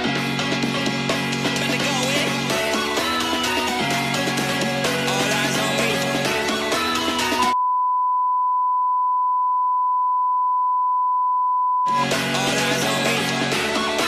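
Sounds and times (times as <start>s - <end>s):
steady electronic beep: 7.6s - 12.2s.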